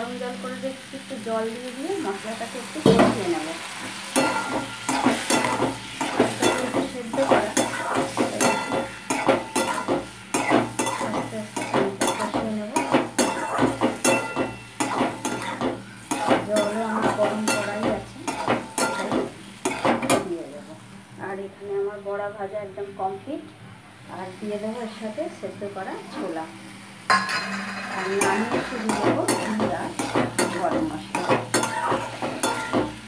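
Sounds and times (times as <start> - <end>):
food sizzling while frying: 0.0 - 22.3, 23.1 - 33.0
spatula scraping a metal pan: 4.2 - 20.1, 27.1 - 33.0.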